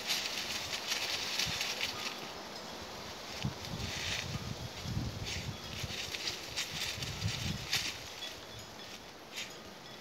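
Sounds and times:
dog digging in dry leaves: 0.0s - 2.4s, 3.2s - 8.2s.

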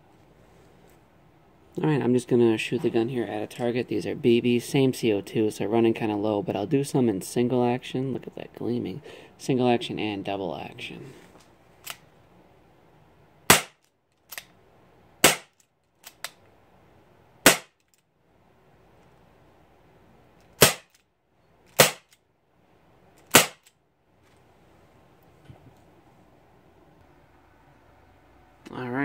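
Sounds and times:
air pistol shots popping: 13.5s - 13.8s, 15.2s - 16.3s, 17.4s - 17.8s, 20.6s - 21.0s, 21.8s - 22.2s, 23.3s - 23.7s.

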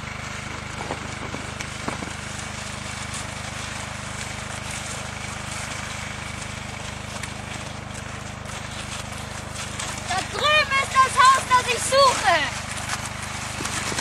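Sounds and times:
generator engine humming: 0.0s - 14.0s.

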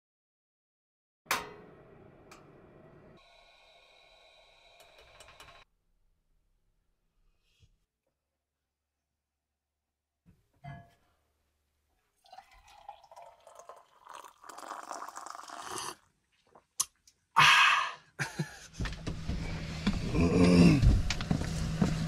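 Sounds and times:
coffee trickling into mug: 12.2s - 16.6s.

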